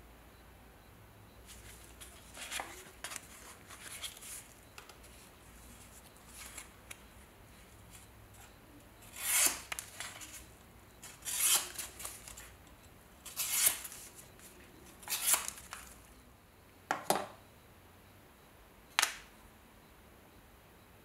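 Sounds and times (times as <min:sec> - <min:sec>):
knife slicing through paper: 0:11.1 - 0:12.2, 0:13.3 - 0:14.0.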